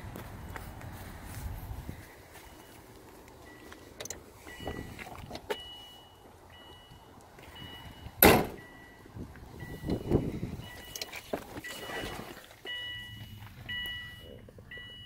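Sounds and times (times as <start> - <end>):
car warning chime beeps: 2.0 - 15.0
loud thump: 8.2 - 8.6.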